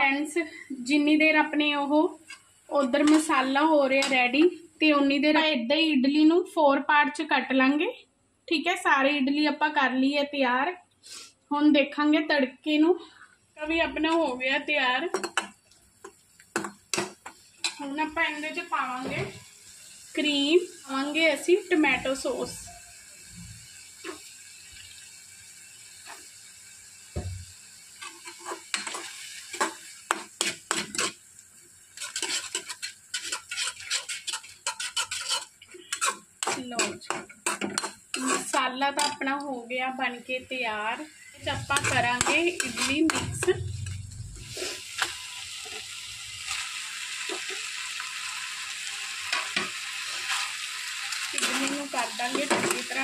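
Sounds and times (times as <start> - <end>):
masala sizzling in pan: 0.0 - 6.3, 11.0 - 11.6, 12.6 - 53.0
metal skimmer scraping pan: 32.0 - 39.2, 41.4 - 45.8.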